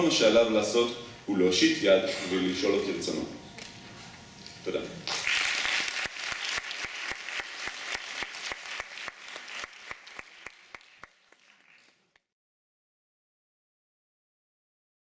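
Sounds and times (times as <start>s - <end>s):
audience applauding: 5.1s - 12.1s
close sharp hand claps: 5.1s - 12.3s.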